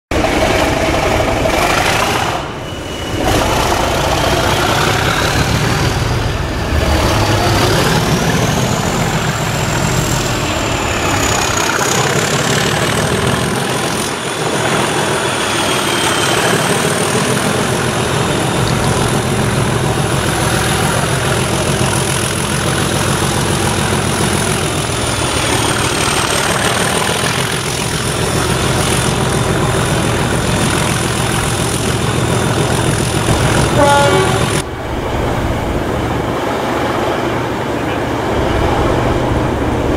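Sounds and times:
diesel locomotive engine working hard: 0:00.0 - 0:39.9
turbocharger whistle: 0:01.5 - 0:06.0.

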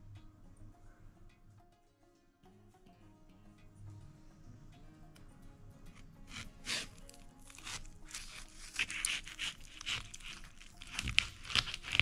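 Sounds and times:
knife crunching through watermelon: 0:06.3 - 0:12.0.

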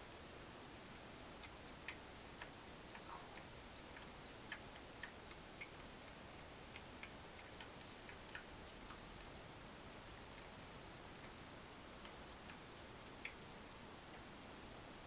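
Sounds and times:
steady low hiss: 0:00.0 - 0:15.0
kitten suckling clicks: 0:01.4 - 0:11.4.

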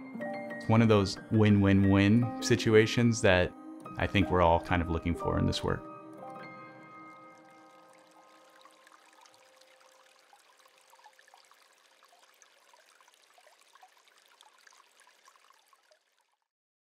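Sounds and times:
stream babbling: 0:05.9 - 0:16.2.

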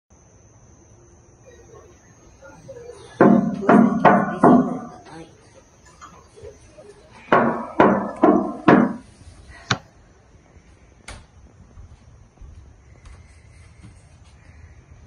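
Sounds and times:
knocking on wooden door: 0:03.2 - 0:05.0, 0:07.3 - 0:09.0.

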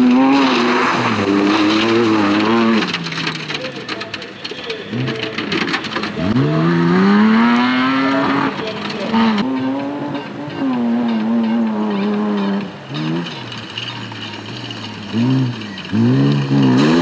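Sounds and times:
truck engines revving hard: 0:00.0 - 0:17.0
tyres spinning through mud: 0:00.0 - 0:17.0.

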